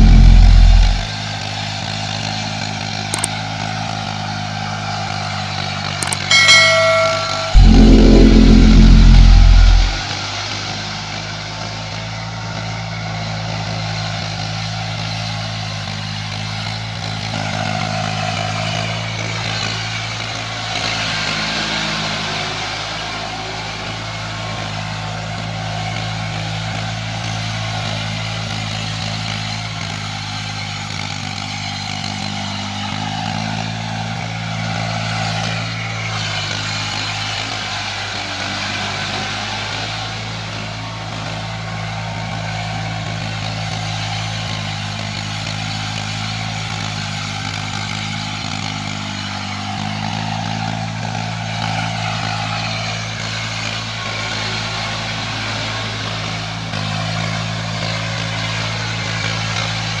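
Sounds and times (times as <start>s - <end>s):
tractor diesel engine running: 0.0s - 1.1s.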